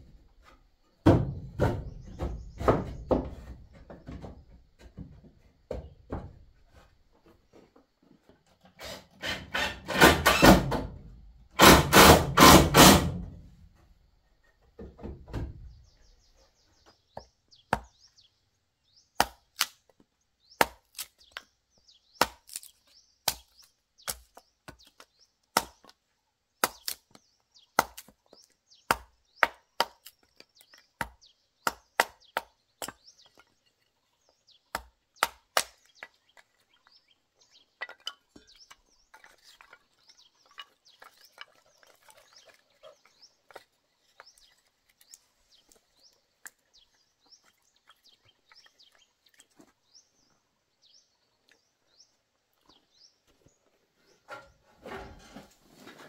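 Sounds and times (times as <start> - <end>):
machete chopping kindling on wood: 11.6 - 13.3, 17.7 - 18.1, 19.2 - 19.8, 22.1 - 22.7, 25.5 - 25.9, 26.6 - 33.4, 34.7 - 36.1.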